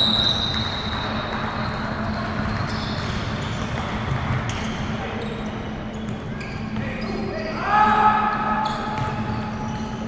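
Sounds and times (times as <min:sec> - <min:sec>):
ball bouncing: 0:08.9 - 0:09.3.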